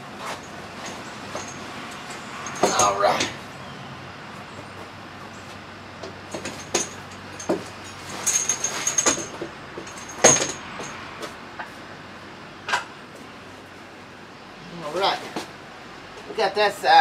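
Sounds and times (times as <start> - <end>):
knocks and clinks on boat: 2.4 - 3.4, 6.3 - 11.0.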